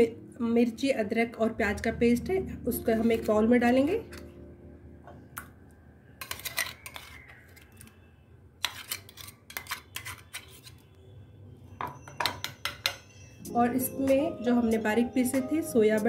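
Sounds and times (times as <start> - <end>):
metal spoon scraping a jar: 6.2 - 7.9, 8.6 - 10.9.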